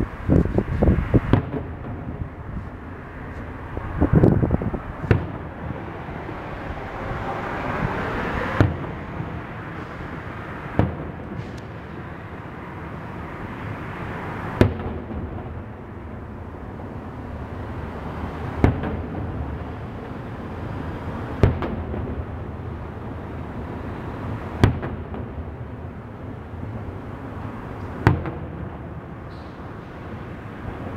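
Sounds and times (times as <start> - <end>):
steady noisy background: 0.0 - 30.9
fireworks bursting with bangs: 0.6 - 2.3, 5.0 - 6.0, 8.5 - 12.1, 14.6 - 15.6, 18.5 - 20.1, 21.3 - 22.4, 24.6 - 25.5, 28.0 - 29.0.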